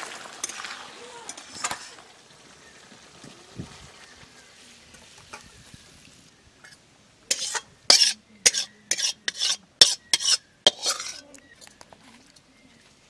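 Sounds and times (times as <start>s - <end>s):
metal spatula scraping wok: 0.4s - 2.1s, 6.6s - 11.4s.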